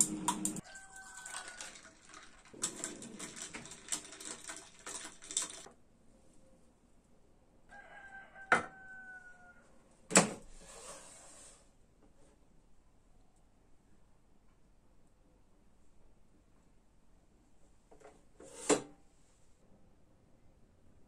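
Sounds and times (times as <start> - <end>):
coffee pouring: 0.0 - 5.7
glass and metal straw clinking: 0.0 - 5.7
ice cubes clinking in glass: 0.0 - 5.7.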